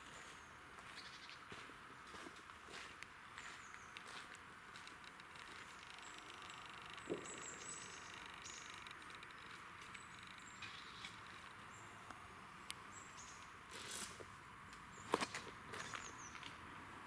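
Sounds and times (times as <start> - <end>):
footsteps on forest litter: 0.0 - 6.3, 13.7 - 16.6
high bird chirps: 5.8 - 11.9.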